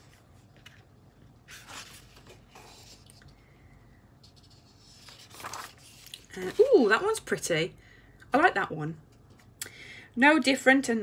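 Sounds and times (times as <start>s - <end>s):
paper pages rustling: 0.0s - 3.4s, 4.2s - 7.2s.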